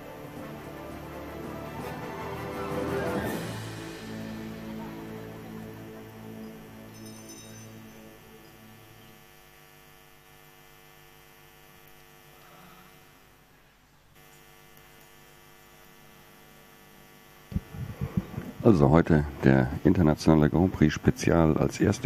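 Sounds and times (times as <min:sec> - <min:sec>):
music: 0:00.0 - 0:09.5
electrical mains hum: 0:00.0 - 0:22.0.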